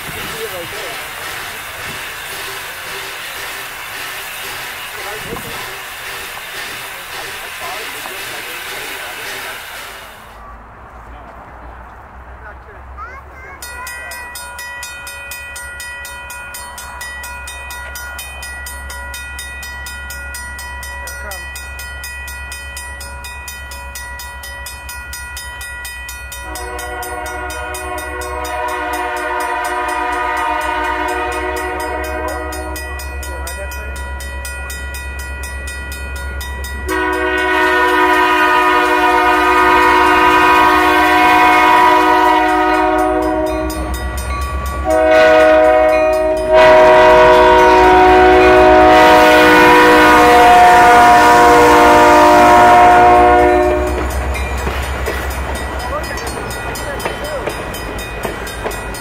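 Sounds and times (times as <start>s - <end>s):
train rumbling: 0.0s - 59.0s
locomotive air horn blowing: 26.4s - 33.0s, 36.9s - 44.0s, 44.8s - 54.1s.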